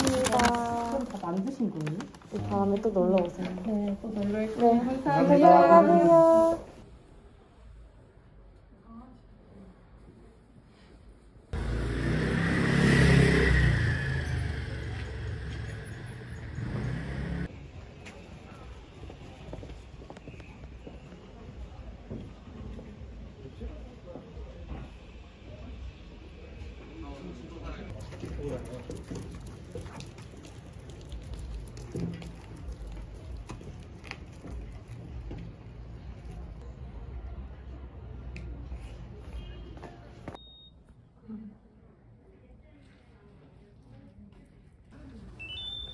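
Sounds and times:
low street rumble: 0.0 - 40.4
vehicle engine passing: 11.6 - 17.5.

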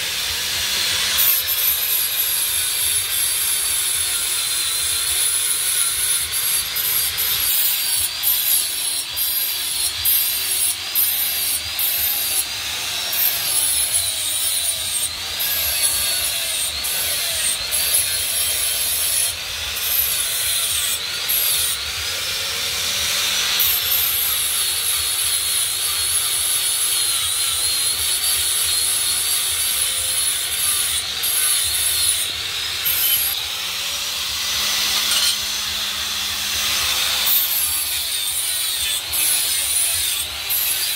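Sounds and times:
angle grinder grinding metal: 0.0 - 40.9.

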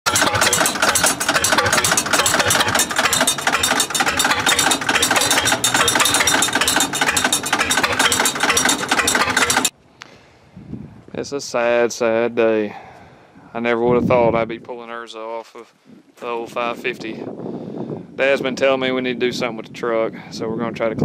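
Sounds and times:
welder engine running with knock: 0.0 - 9.7.

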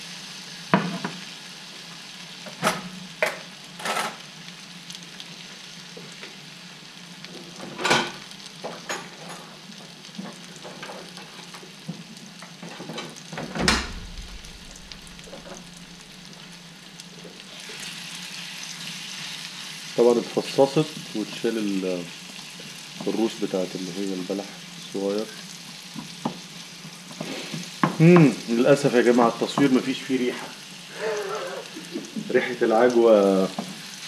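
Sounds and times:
sharp knocks: 13.5 - 15.7
paste frying in oil: 14.0 - 34.0.

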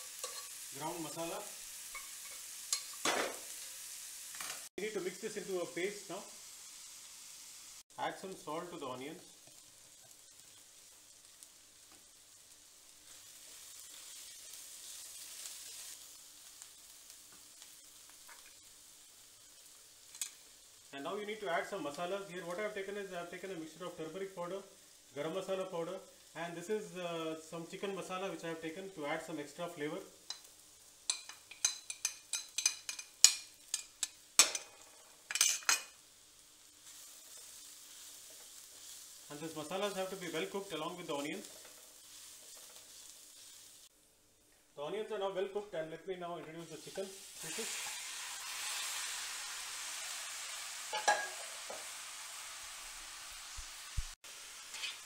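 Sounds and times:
onions sizzling in a pan: 0.0 - 55.0
glass plate clinking on pan: 50.9 - 51.6.

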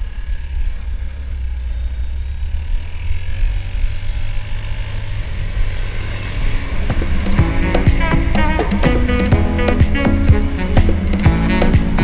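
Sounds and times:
scooter engine running: 0.0 - 12.0.

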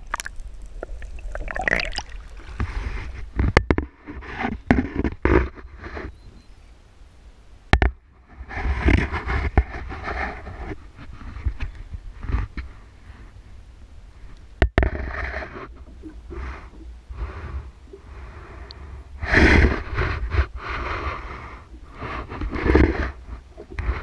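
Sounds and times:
wind rumble on microphone: 7.8 - 24.0.

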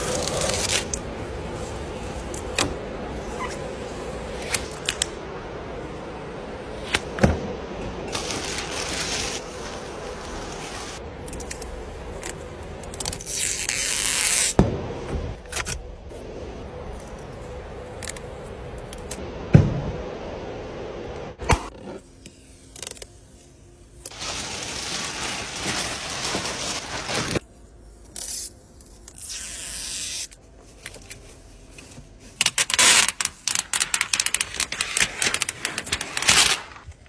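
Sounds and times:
plastic film peeling and crackling: 0.0 - 1.1, 8.1 - 14.6, 24.1 - 27.4, 32.2 - 37.0.

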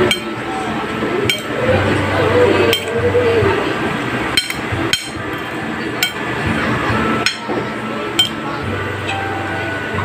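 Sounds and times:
steady background hum: 0.0 - 10.0.

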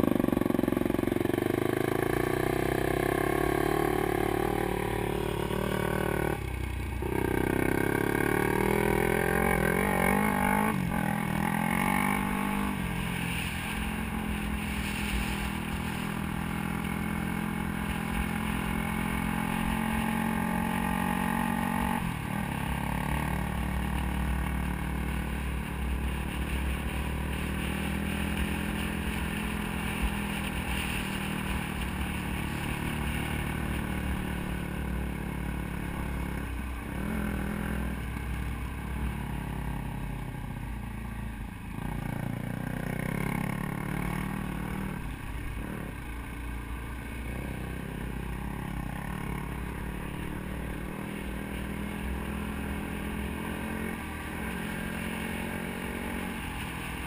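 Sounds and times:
dirt bike engine running: 0.0 - 38.0.

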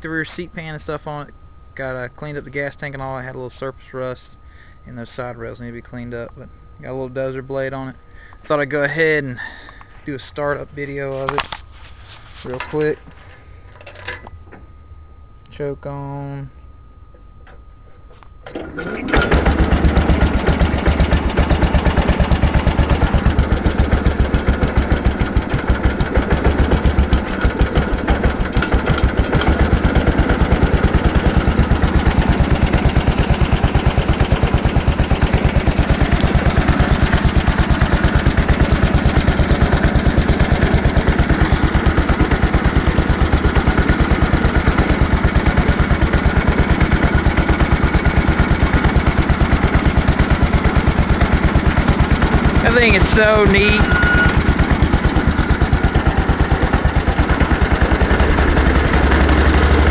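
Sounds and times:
garden tractor engine running: 18.4 - 59.9.

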